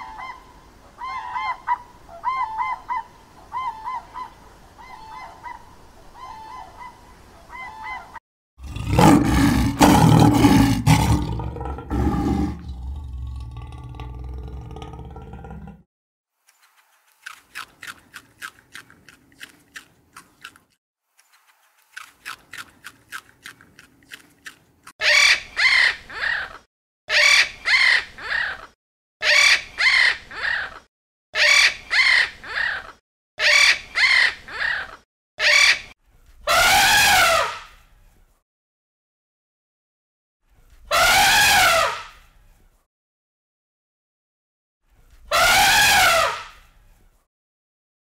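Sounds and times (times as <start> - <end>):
macaw squawking: 25.0 - 35.9.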